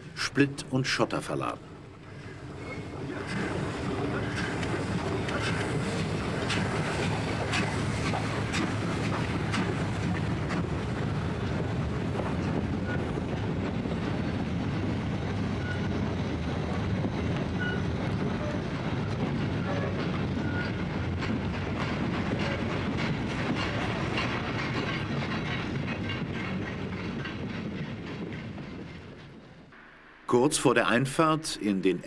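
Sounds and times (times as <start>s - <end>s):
train wheels rumbling: 0.0s - 32.0s
wheels clattering over rail joints: 2.2s - 29.7s.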